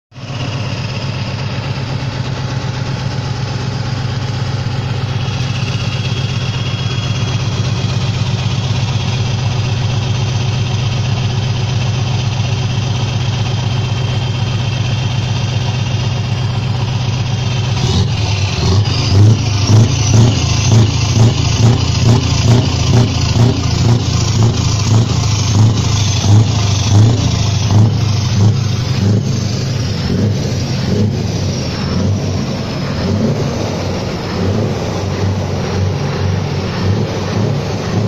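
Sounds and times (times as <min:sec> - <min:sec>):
diesel engine idling: 0:00.1 - 0:38.0.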